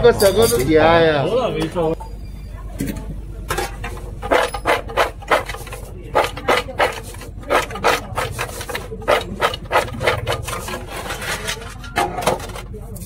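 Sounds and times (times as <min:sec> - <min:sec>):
fries rattling on steel tray: 0:03.5 - 0:13.0.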